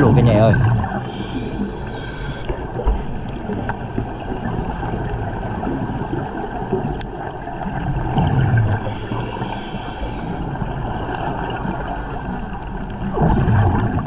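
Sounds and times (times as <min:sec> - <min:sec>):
low underwater rumble: 0:00.0 - 0:01.8, 0:02.5 - 0:14.0
rushing underwater water and air: 0:00.0 - 0:14.0.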